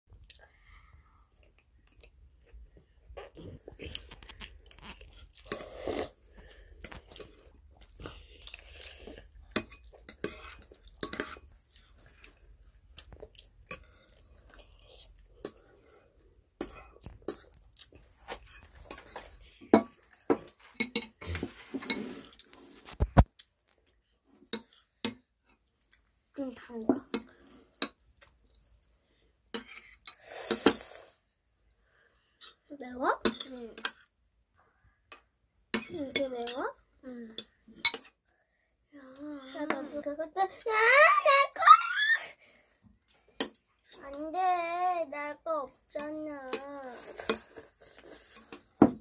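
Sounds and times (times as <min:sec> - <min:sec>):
wet chewing: 0:03.2 - 0:15.6.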